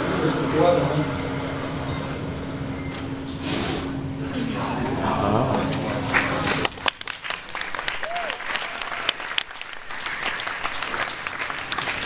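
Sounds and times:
murmur of voices: 4.1 - 6.7
audience applauding: 6.0 - 12.0.

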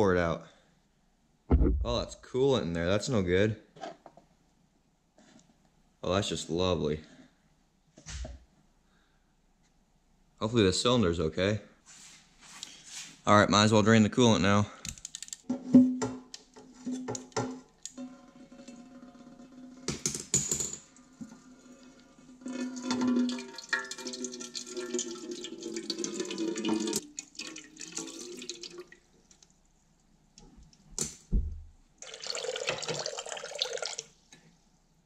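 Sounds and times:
liquid trickling into metal pan: 21.7 - 29.0.

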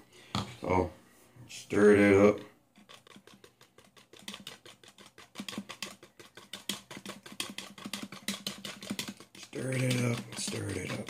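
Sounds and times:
utensil scraping plastic tub: 2.8 - 11.0.

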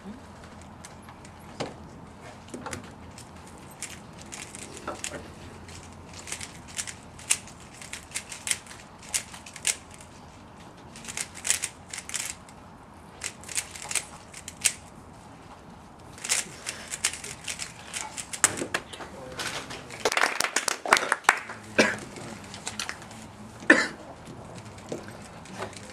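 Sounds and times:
puzzle cube plastic clicks: 3.2 - 10.0, 11.0 - 12.5, 13.2 - 14.8, 16.2 - 18.8.

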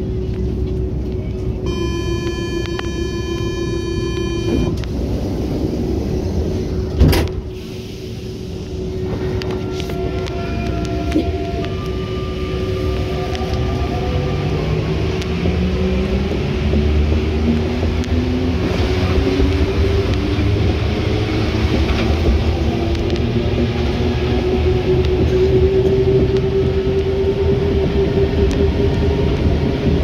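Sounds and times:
passing train rushing: 0.0 - 30.0
train running gear rumble: 0.0 - 30.0
train motor whine: 1.7 - 5.0.

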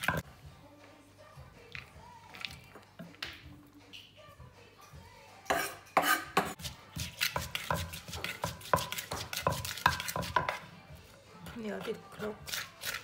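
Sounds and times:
spoon clinking against mortar: 5.5 - 10.6
wooden pestle pounding in mortar: 6.4 - 10.6.

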